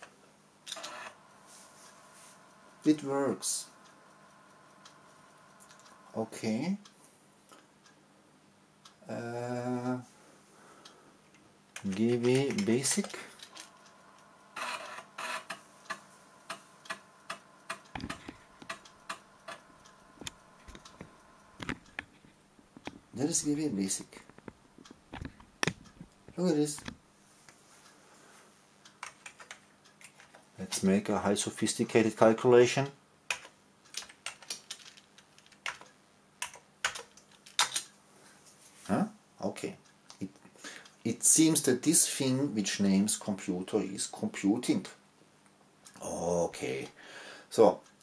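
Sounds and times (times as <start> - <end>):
floppy disk drive noisy bursts: 0.7 - 6.2, 12.0 - 22.0
disk drive head clicking: 14.6 - 23.1.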